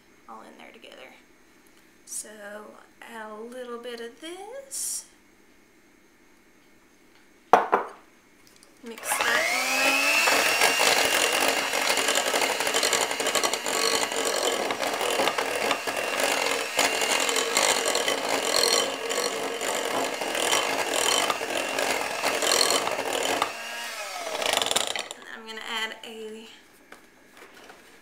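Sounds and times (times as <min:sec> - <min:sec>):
electric hand mixer running: 0:09.0 - 0:25.2.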